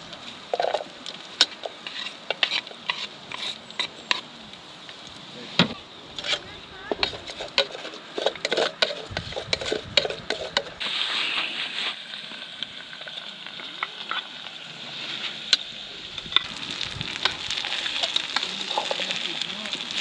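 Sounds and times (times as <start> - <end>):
food sizzling in a pan: 0.0 - 20.0
utensil clicking and scraping: 0.5 - 4.2, 6.2 - 10.8.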